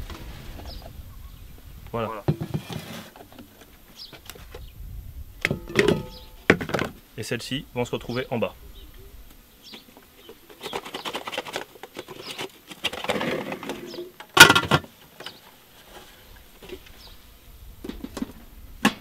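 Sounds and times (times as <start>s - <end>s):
loud metal clank: 5.5s - 6.4s.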